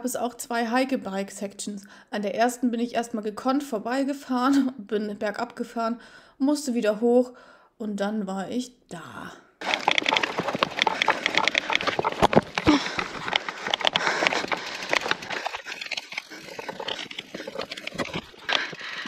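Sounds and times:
bike clattering over rocks: 9.6 - 19.0
tyres crunching on stones: 9.6 - 19.0.

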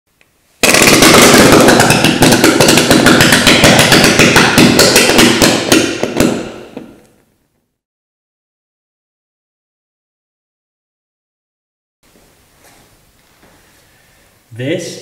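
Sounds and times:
burning ethanol popping and banging: 0.6 - 7.1.

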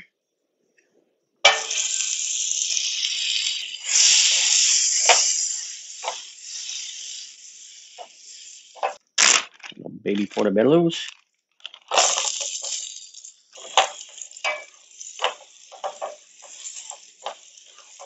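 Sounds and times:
butter sizzling in frying pan: 1.4 - 9.4, 11.7 - 18.0.

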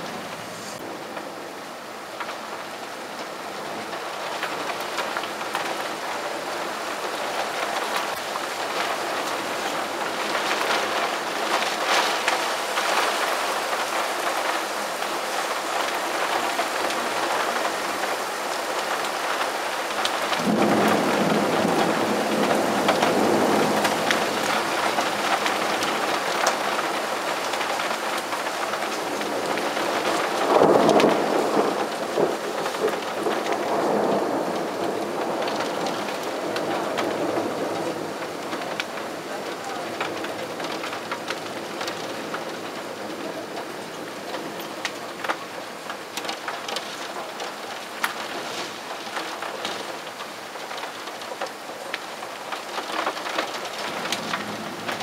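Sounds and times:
heavy rain: 0.0 - 55.0
thunder rumbling: 15.4 - 50.9, 52.8 - 55.0.

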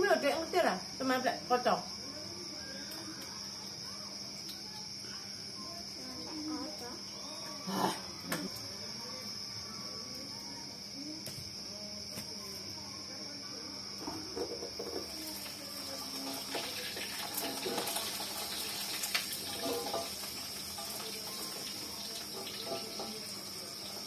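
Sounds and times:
food sizzling in hot oil: 14.0 - 24.0
metal utensils scraping wok: 16.2 - 23.6.

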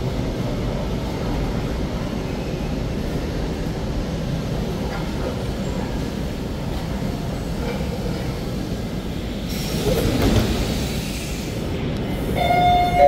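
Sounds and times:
train wheels and motors rumbling: 0.0 - 13.0
train hiss: 5.4 - 13.0.

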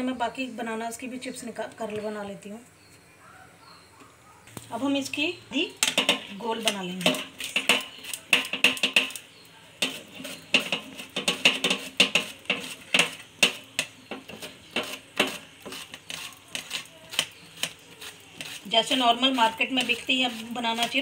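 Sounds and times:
banana rasping on grater blade: 9.8 - 13.2, 14.3 - 21.0.

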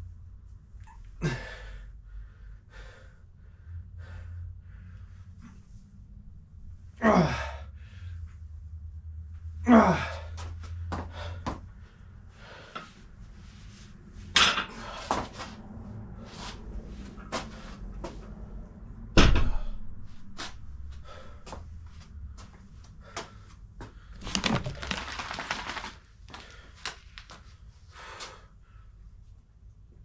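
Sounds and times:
heavy thud: 19.1 - 19.8.

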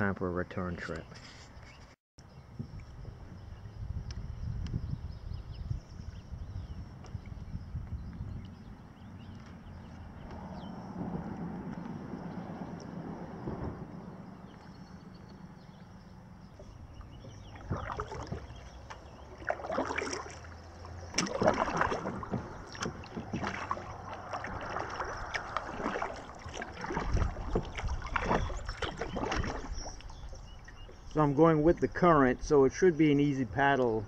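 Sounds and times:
paddle splashing in water: 12.4 - 31.4
water dripping off paddle: 16.5 - 31.2.

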